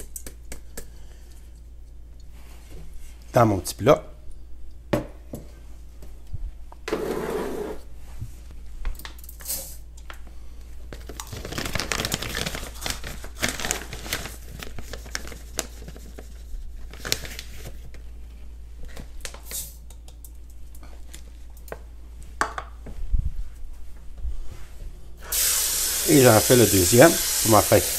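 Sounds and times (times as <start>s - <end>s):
rustling and crinkling: 10.6s - 19.5s.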